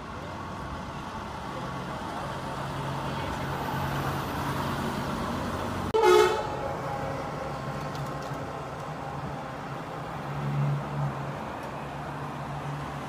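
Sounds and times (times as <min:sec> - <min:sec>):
street traffic: 0:00.0 - 0:13.0
car horn toot: 0:06.0 - 0:06.6.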